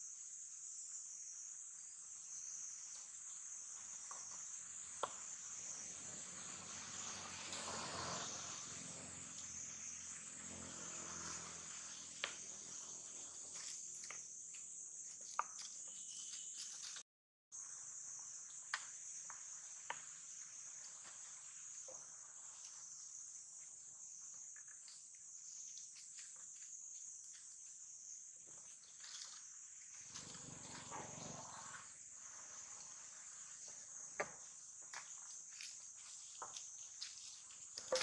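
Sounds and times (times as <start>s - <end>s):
insects droning: 0.0s - 38.0s.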